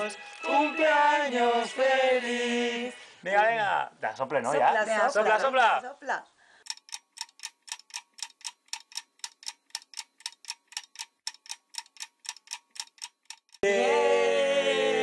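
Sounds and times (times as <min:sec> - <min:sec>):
fast even ticking: 0:06.6 - 0:13.6
sustained voice: 0:13.6 - 0:15.0.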